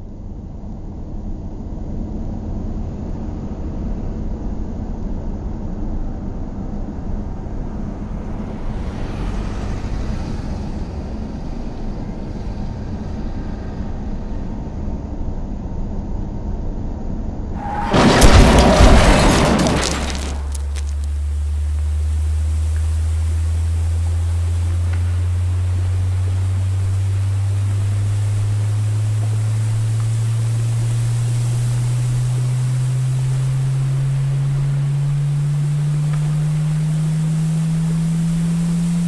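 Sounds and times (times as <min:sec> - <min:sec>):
car crashing: 0:17.6 - 0:22.3
car cabin driving rumble: 0:17.6 - 0:39.0.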